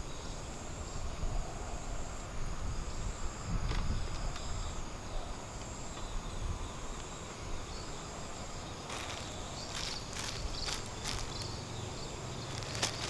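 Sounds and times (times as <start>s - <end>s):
insects chirring: 0.0s - 13.0s
cardboard and plastic sack rustling: 8.8s - 11.8s, 12.4s - 13.0s.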